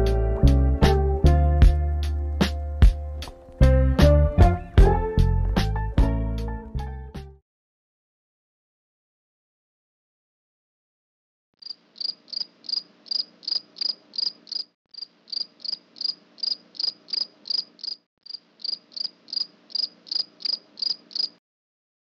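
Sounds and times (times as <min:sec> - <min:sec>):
cricket chirps sound effect: 0:11.6 - 0:21.4.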